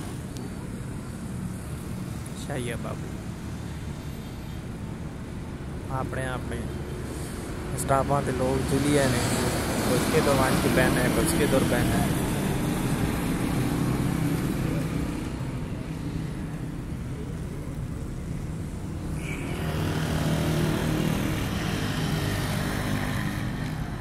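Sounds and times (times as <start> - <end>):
small motorcycles passing: 8.4 - 24.0
low engine drone: 9.9 - 24.0.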